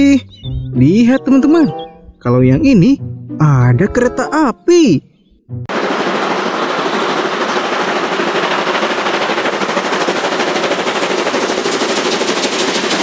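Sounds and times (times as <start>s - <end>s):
steam locomotive chuffing: 5.7s - 13.0s.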